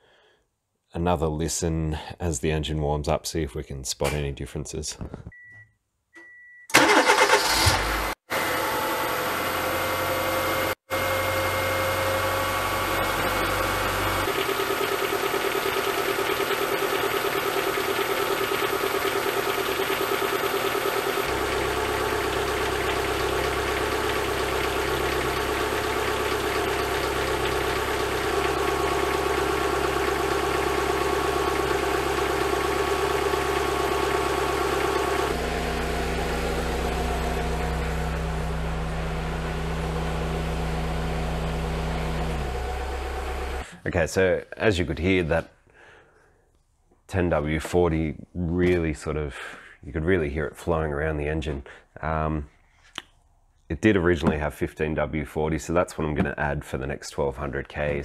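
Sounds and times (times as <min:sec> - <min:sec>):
car engine idling: 0:09.0 - 0:43.7
oil moving around engine: 0:12.7 - 0:43.6.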